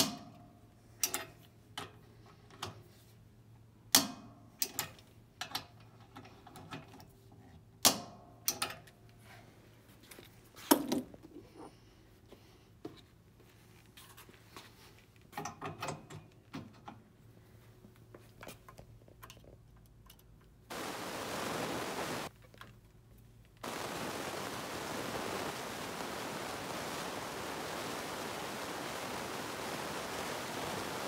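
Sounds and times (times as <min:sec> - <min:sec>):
loud steady hiss: 0:20.7 - 0:22.3, 0:23.6 - 0:31.0.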